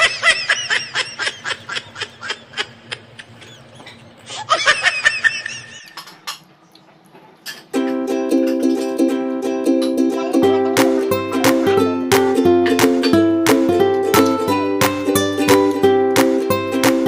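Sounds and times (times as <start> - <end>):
high-pitched laughter: 0.0 - 6.2
plucked ukulele music: 7.7 - 17.0.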